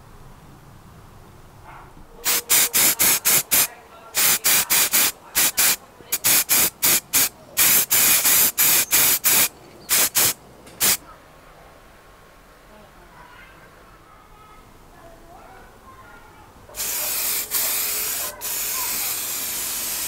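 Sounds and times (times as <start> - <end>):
spray can hissing bursts: 2.2 - 11.0, 16.8 - 20.0.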